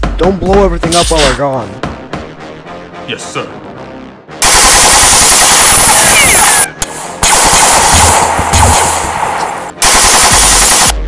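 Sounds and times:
machine-gun fire: 4.4 - 6.5, 7.2 - 11.0.

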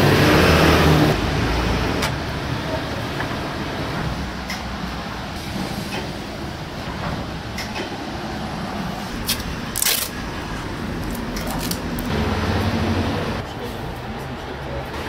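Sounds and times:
low street noise rumble: 0.0 - 15.0
tape tearing rip: 9.2 - 10.2, 11.0 - 12.1.

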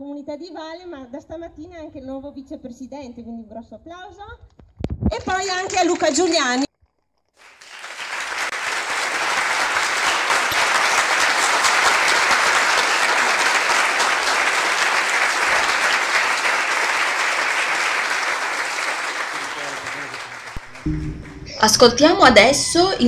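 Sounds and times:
audience applauding: 7.4 - 21.8.

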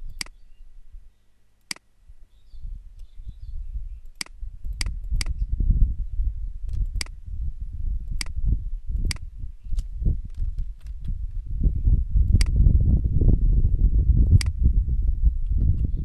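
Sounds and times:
low uneven rumble: 2.0 - 16.0
computer mouse clicking: 4.0 - 5.4, 8.1 - 8.4, 12.4 - 12.6.

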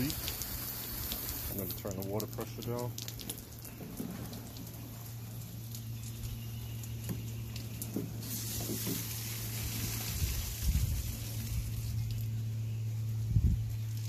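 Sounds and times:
steady low hum: 0.0 - 14.0
water dripping onto deck: 0.0 - 14.0.

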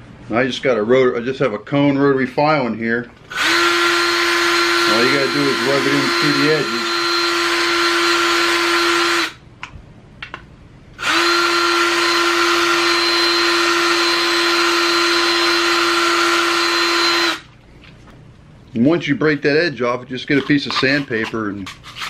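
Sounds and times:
drill grinding plastic: 3.3 - 9.4, 11.0 - 17.5.

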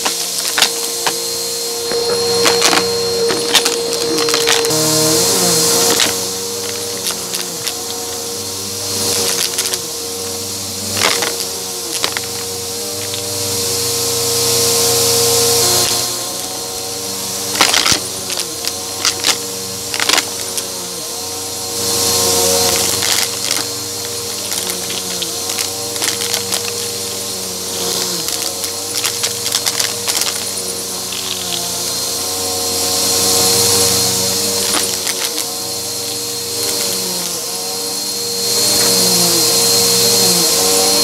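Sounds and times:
debris rattling in vacuum: 0.0 - 41.0
vacuum cleaner motor hum: 0.0 - 41.0.

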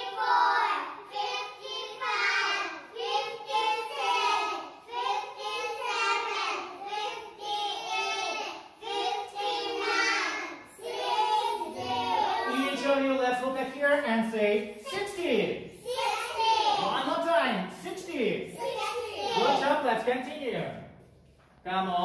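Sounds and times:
children counting aloud: 0.0 - 13.1, 14.8 - 17.1, 18.5 - 19.8.

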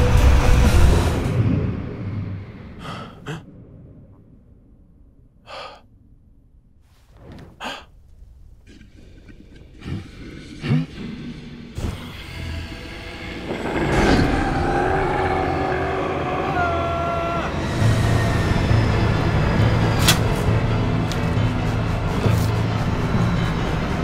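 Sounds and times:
man gasping and breathing: 2.8 - 3.4, 5.4 - 5.9, 7.6 - 8.0
loud low rumble: 12.4 - 21.0.

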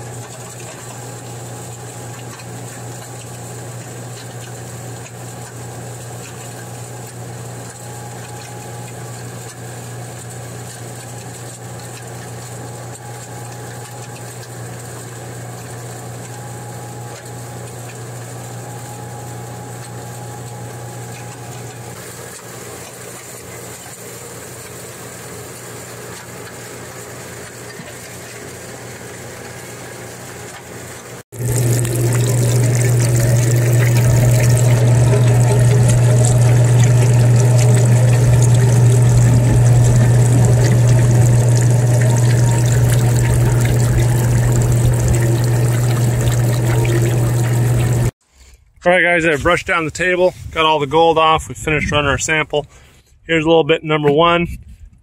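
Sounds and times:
milling machine hum: 0.0 - 48.1
water washing over shaker table: 31.4 - 48.1.

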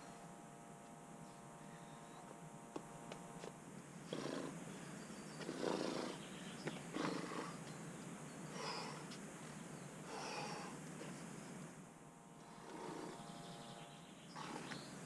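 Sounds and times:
person breathing hard: 10.1 - 11.2.

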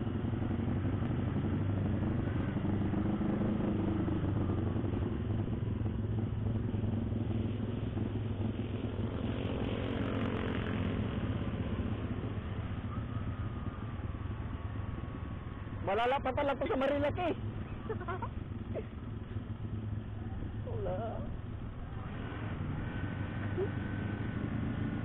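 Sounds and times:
motorcycle engine riding: 0.0 - 25.0.

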